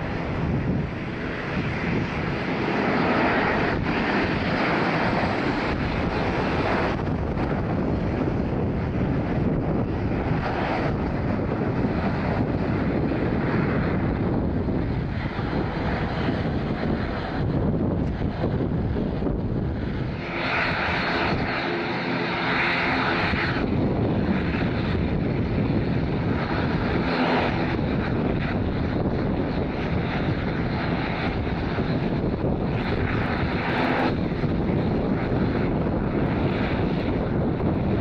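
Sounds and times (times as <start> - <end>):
jet engine noise: 0.0 - 38.0.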